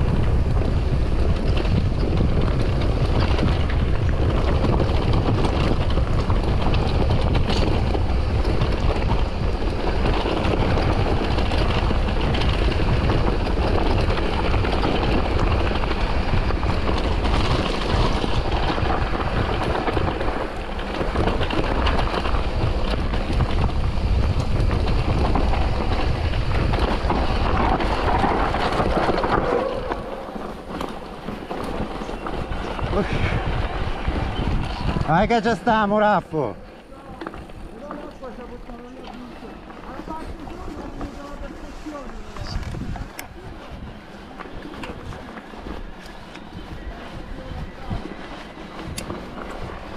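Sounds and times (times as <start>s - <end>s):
wind buffeting microphone: 0.0s - 49.9s.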